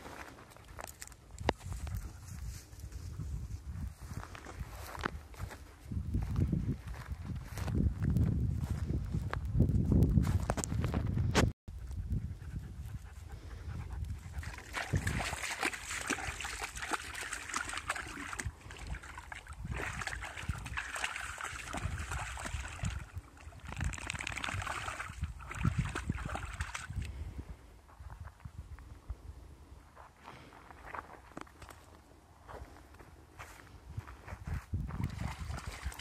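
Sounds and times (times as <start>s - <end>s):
splashing in muddy water: 14.3s - 27.1s, 35.0s - 36.0s.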